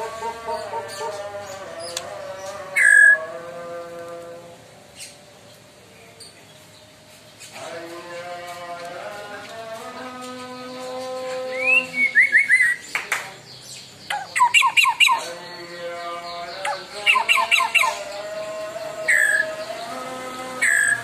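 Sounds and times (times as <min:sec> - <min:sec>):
songbird singing rapid bursts: 0:00.0 - 0:03.2, 0:09.9 - 0:21.0.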